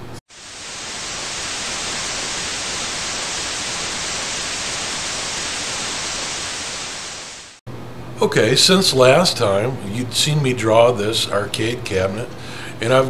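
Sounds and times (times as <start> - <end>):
tv static hiss: 0.0 - 7.6.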